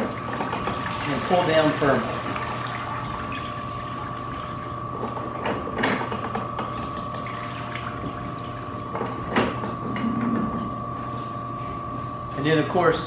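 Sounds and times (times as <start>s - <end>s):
water running into bucket: 0.0s - 4.7s.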